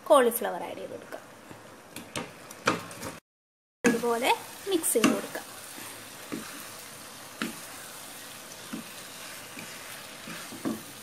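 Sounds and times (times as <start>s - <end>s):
cauliflower sizzling in sauce: 3.9s - 11.0s
wooden spatula knocking pan: 10.3s - 11.0s.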